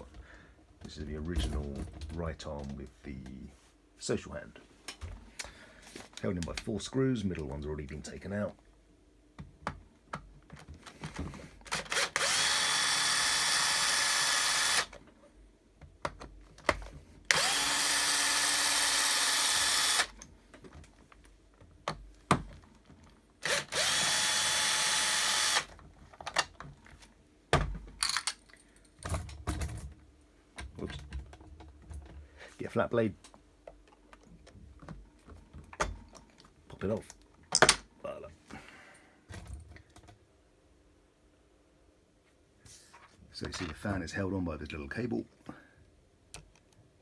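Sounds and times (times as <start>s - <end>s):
power screwdriver running: 11.7s - 14.9s, 17.3s - 20.1s, 23.4s - 25.7s
handling clicks and knocks: 25.7s - 32.2s.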